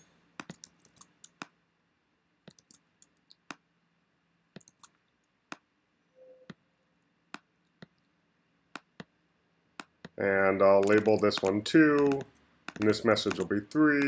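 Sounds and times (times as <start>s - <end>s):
mouse and keyboard clicks: 0.4s - 1.6s, 2.5s - 3.6s, 4.6s - 5.6s, 10.8s - 14.0s.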